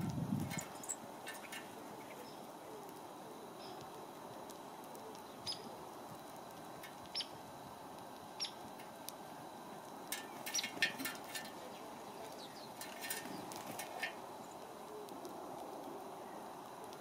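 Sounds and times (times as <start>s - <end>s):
faint outdoor hiss: 0.0s - 17.0s
bird high ticks: 0.4s - 3.0s, 6.8s - 7.3s, 10.1s - 11.6s.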